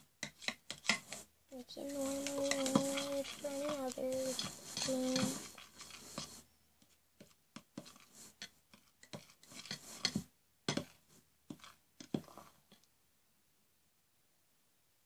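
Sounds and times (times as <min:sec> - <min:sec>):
knife scraping in a bowl: 0:00.2 - 0:06.4, 0:07.8 - 0:12.6.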